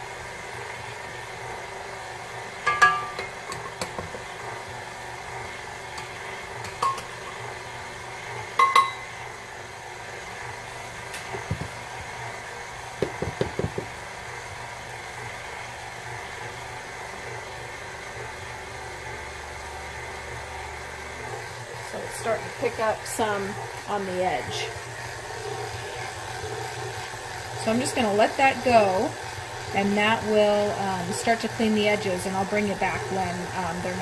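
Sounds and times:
stand mixer kneading dough: 0:00.0 - 0:34.0
metal cup clinking on bowl: 0:02.7 - 0:03.3, 0:08.6 - 0:09.0
dull knocks: 0:13.0 - 0:13.9.

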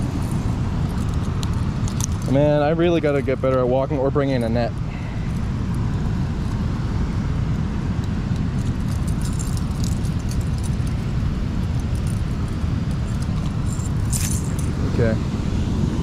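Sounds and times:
metal chain clinking: 0:08.6 - 0:15.1.

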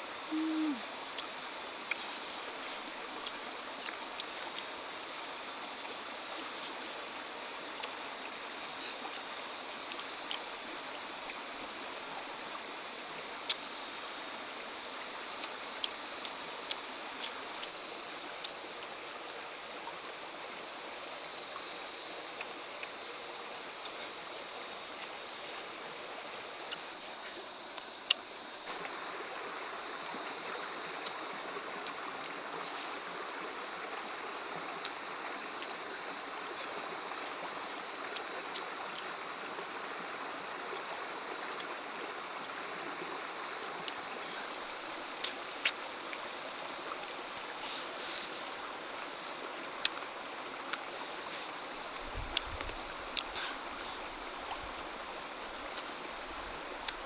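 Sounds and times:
forest stream rushing: 0:00.0 - 0:57.0
insects droning: 0:00.0 - 0:57.0
faint ticks: 0:10.1 - 0:10.5, 0:56.8 - 0:57.0.

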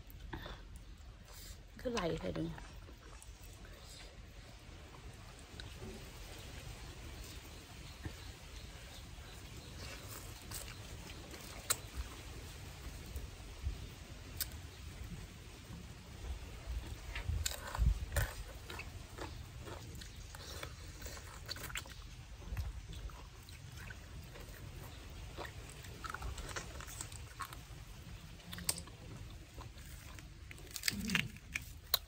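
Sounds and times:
person chewing: 0:02.6 - 0:06.4, 0:07.1 - 0:12.3, 0:16.7 - 0:32.0.

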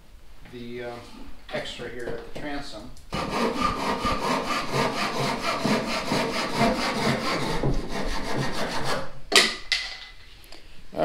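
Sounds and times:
hand saw cutting wood: 0:03.1 - 0:09.2.

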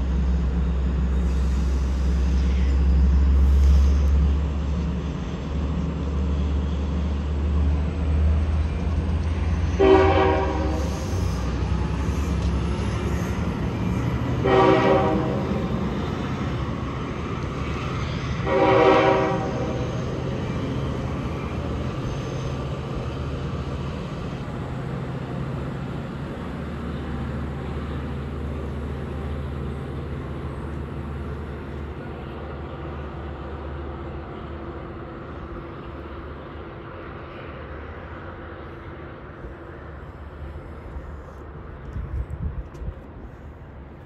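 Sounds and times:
locomotive horn blast: 0:09.7 - 0:11.2, 0:14.4 - 0:15.7, 0:18.4 - 0:19.8.

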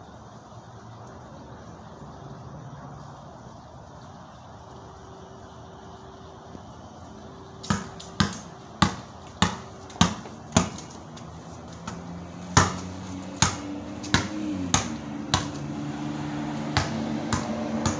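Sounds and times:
passing car engine: 0:11.0 - 0:17.9.

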